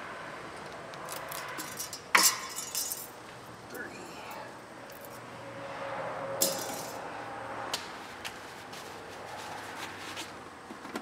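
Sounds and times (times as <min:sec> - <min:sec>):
metal parts and tools clinking: 0:01.1 - 0:03.2, 0:06.4 - 0:07.0.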